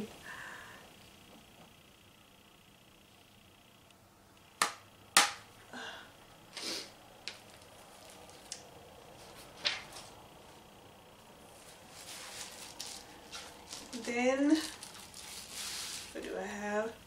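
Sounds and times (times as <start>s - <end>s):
plastic packaging crinkling: 7.3s - 10.2s, 11.6s - 16.3s.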